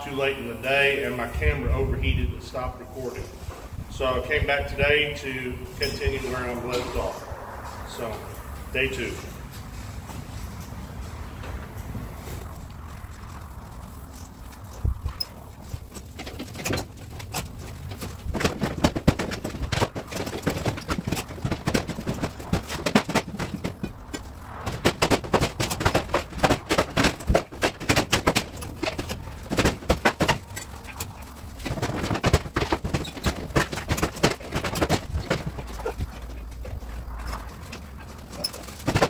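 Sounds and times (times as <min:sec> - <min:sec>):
corrugated metal sheeting banging: 0:02.6 - 0:11.8, 0:15.1 - 0:39.0.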